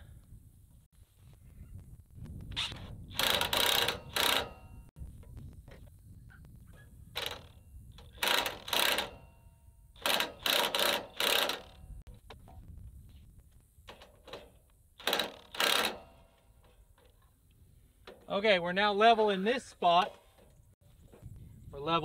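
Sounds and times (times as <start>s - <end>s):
cordless drill driving a jack: 3.1s - 4.7s, 8.1s - 9.2s, 10.0s - 11.8s, 15.0s - 16.2s.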